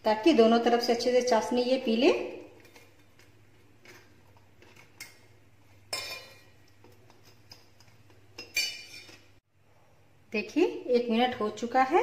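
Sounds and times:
metal fork clinking on bowl: 5.9s - 6.5s, 8.4s - 9.2s.

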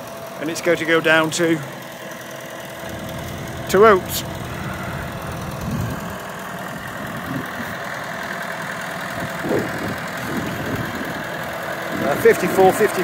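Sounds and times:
tractor diesel engine running: 2.7s - 12.4s.

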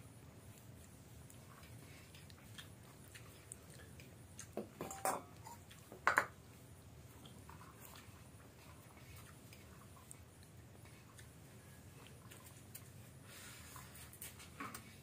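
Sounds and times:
person chewing: 0.5s - 4.6s, 5.4s - 5.9s.

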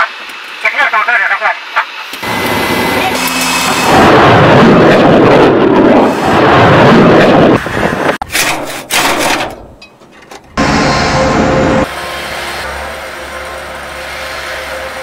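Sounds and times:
loud mechanical noise: 1.6s - 9.6s, 10.3s - 15.0s
rocket motor roaring: 2.2s - 8.2s.

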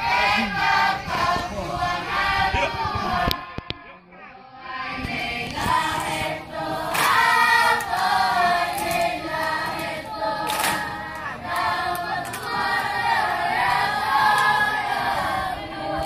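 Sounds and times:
children singing in chorus: 0.0s - 16.0s
sharp claps: 5.4s - 14.7s.

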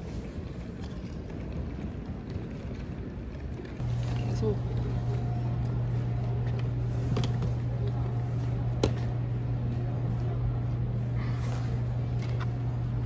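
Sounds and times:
machinery hum: 0.0s - 13.0s.

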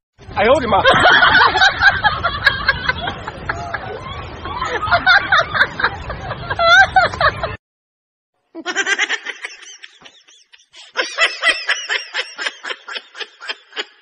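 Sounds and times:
person laughing hard: 8.6s - 14.0s.

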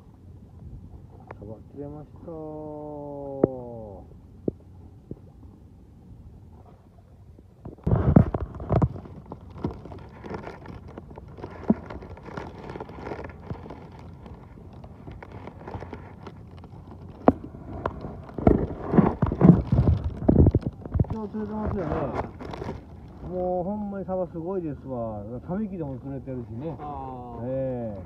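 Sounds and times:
plastic bag rustling and crinkling: 7.8s - 24.4s.

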